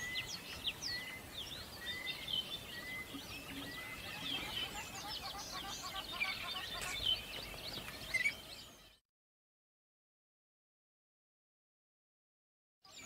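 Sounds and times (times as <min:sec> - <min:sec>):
small birds chirping: 0:00.0 - 0:09.0.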